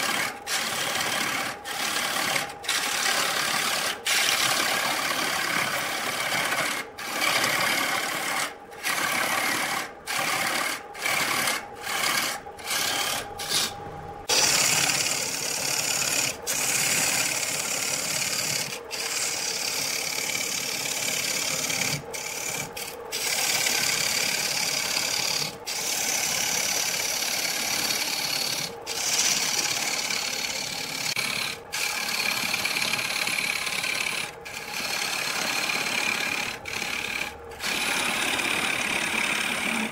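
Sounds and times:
lathe tool scraping wood: 0:00.0 - 0:39.9.

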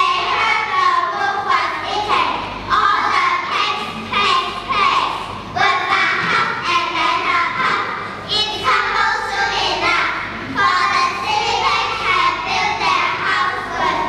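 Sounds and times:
children singing in chorus: 0:05.5 - 0:14.0.

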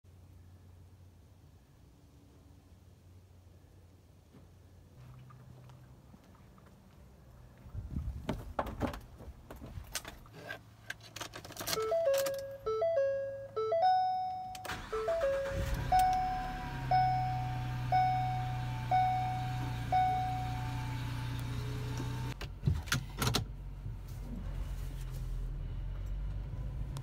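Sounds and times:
seatbelt warning chime: 0:11.7 - 0:21.5
two-note dashboard warning chimes: 0:11.8 - 0:21.4
van engine starting and idling: 0:11.8 - 0:27.0.

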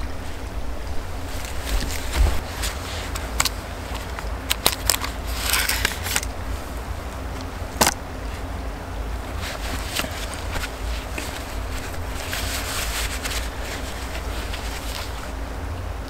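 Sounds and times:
wind rumble on microphone: 0:00.0 - 0:16.0
blade scraping wood: 0:04.9 - 0:06.3.

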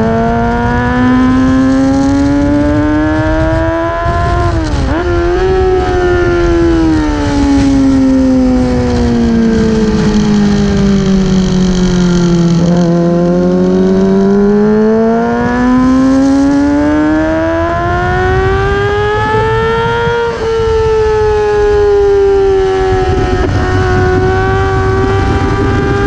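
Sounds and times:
motorcycle engine accelerating: 0:00.0 - 0:26.0
wind noise: 0:00.0 - 0:26.0.

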